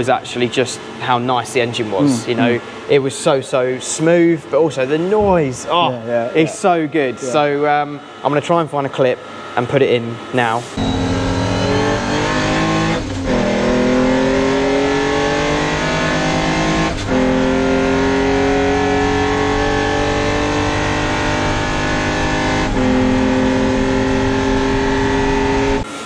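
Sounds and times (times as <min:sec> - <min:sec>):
race car engine running hard: 0:10.2 - 0:26.0.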